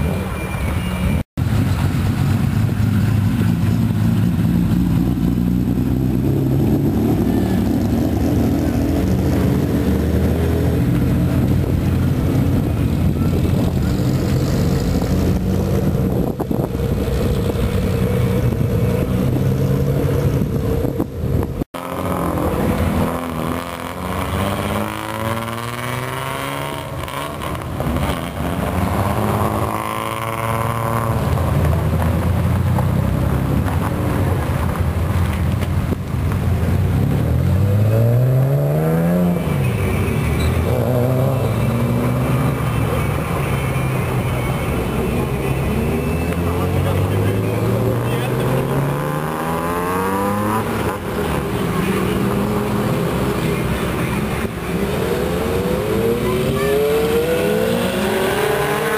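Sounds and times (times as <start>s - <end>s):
loud car exhausts revving: 2.1s - 35.2s, 44.1s - 58.9s.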